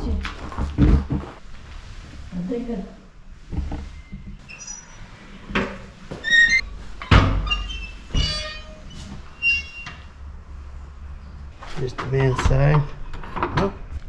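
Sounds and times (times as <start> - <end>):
door hinges squeaking: 3.6 - 10.2.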